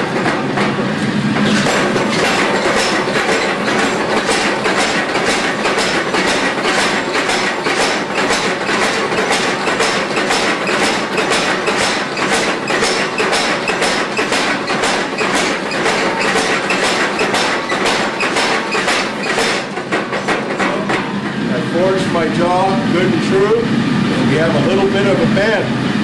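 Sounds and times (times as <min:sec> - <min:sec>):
hammer striking steel on anvil: 0:01.4 - 0:21.1.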